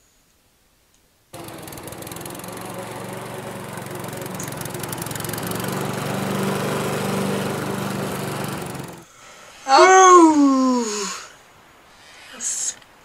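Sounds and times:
lawn mower engine running: 1.4s - 9.1s.

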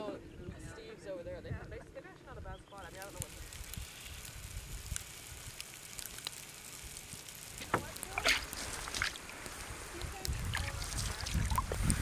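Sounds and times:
wind rumbling on microphone: 0.0s - 5.6s, 7.5s - 12.0s
faint clicks: 2.8s - 12.0s.

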